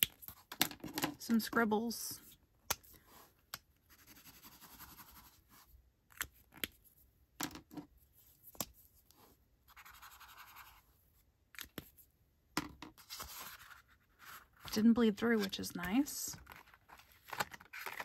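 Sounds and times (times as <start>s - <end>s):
pen scratching on paper: 9.7s - 10.8s.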